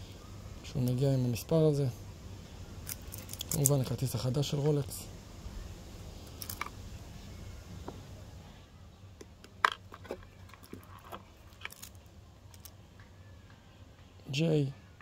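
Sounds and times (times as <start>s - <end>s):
card handling noise: 2.9s - 3.8s, 9.5s - 12.7s.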